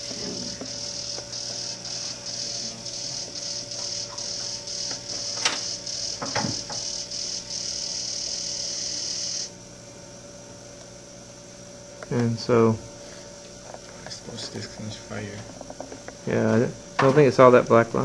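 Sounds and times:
robot motors whirring: 0.0 - 9.5
steady low hum: 0.0 - 18.0.

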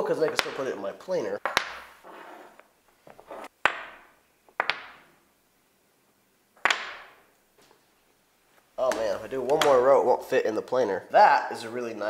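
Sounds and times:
wooden blocks clacking: 0.1 - 0.7, 1.4 - 2.0, 3.1 - 5.2, 6.6 - 7.3, 8.8 - 9.9.

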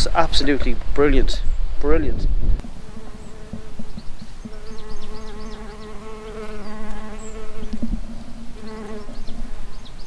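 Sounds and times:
small birds chirping: 0.0 - 10.0
flying insect buzzing: 2.6 - 10.0.

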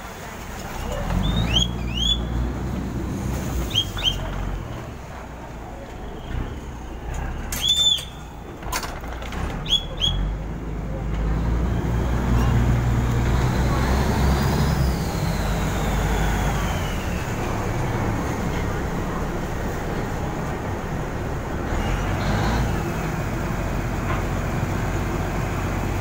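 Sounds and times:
boat engine rumble: 0.0 - 26.0
whistle blown: 1.2 - 2.4, 3.7 - 4.3, 7.5 - 8.3, 9.6 - 10.3.

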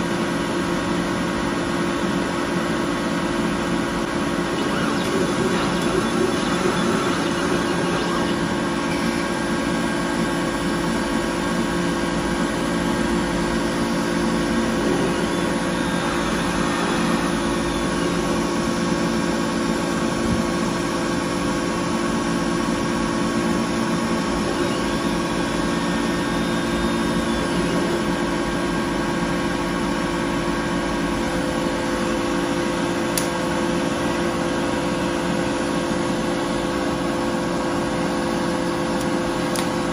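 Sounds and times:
laser cutter fans humming: 0.0 - 39.9
faint high whines: 3.0 - 11.6, 12.5 - 20.7
sharp click: 39.0 - 39.8.

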